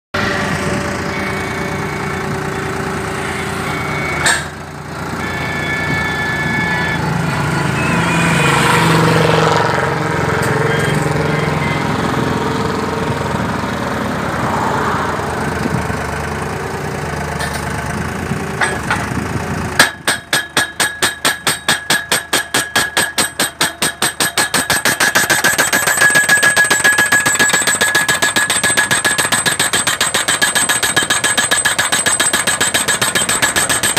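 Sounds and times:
hammer striking steel post: 4.2 - 4.6, 18.6 - 19.2, 19.8 - 33.9.

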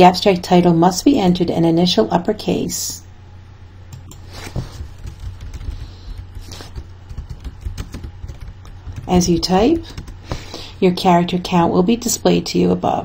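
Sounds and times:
typing on computer keyboard: 4.8 - 10.3.

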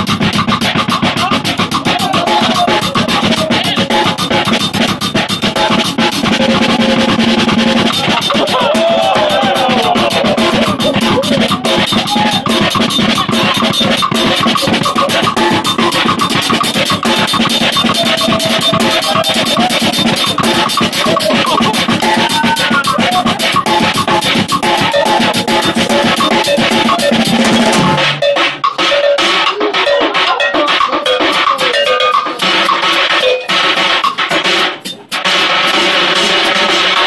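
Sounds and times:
drum kit: 0.0 - 37.0
hand percussion rapid hits: 0.0 - 37.0
live band playing: 0.0 - 37.0.

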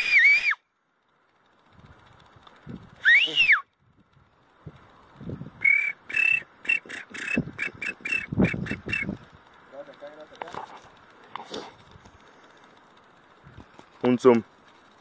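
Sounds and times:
high whistled notes: 0.0 - 0.6, 3.0 - 3.7, 5.6 - 9.1.

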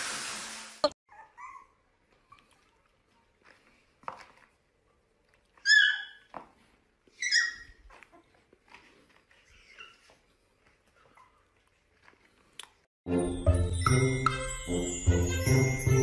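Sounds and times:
puppy whimper: 1.1 - 2.4, 9.4 - 10.3
puppy yipping: 1.1 - 2.6, 5.6 - 6.4, 7.1 - 8.4, 9.4 - 10.2.

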